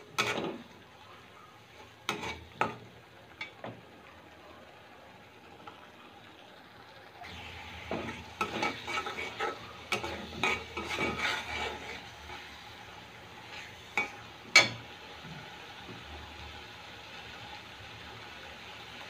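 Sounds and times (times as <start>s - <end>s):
spatula scraping pan: 0.0s - 0.8s, 1.7s - 3.5s, 7.3s - 14.9s
low sizzle: 0.0s - 19.0s.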